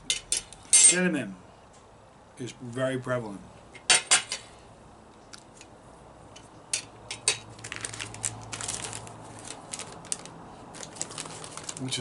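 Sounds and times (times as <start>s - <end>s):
plastic bag crinkling: 7.5s - 12.0s.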